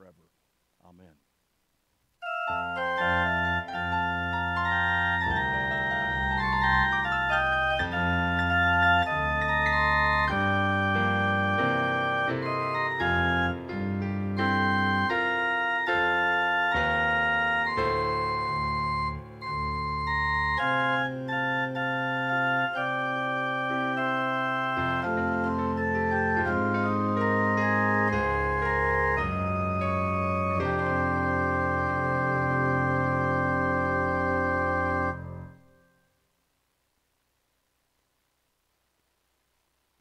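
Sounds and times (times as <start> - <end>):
organ playing sustained chords: 2.2 - 35.9.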